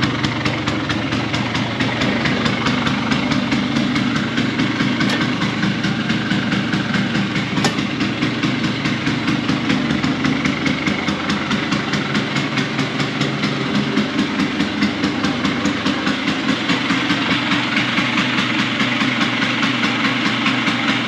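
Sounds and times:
scooter engine idling: 0.0s - 21.0s.

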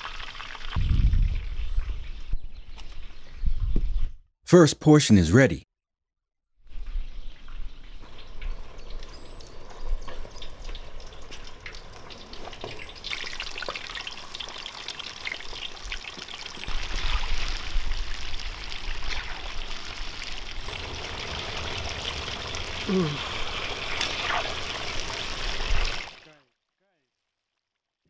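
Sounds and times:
hot oil sizzling and crackling: 0.0s - 0.9s, 6.8s - 26.2s.

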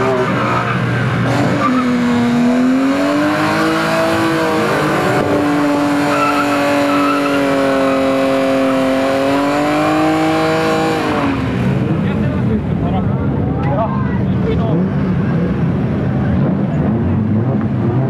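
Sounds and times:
tyres squealing on asphalt: 0.0s - 10.0s
car engine revving high: 0.0s - 12.7s.

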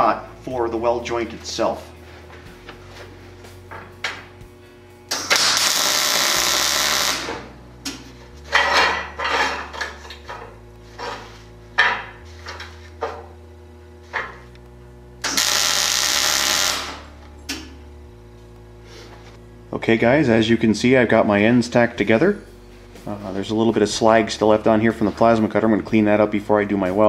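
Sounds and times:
arc welding hiss and crackle: 5.1s - 7.5s, 14.1s - 18.9s.

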